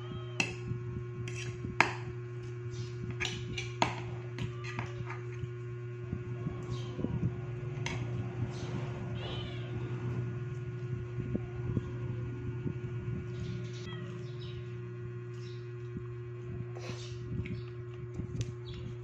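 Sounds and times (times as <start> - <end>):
cat meowing: 9.1 - 9.9, 13.8 - 14.5.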